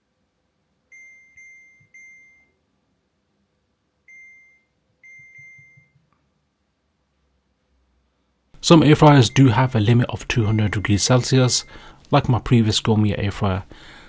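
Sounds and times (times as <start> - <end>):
short single-tone beeps: 0.9 - 2.6, 4.1 - 6.0.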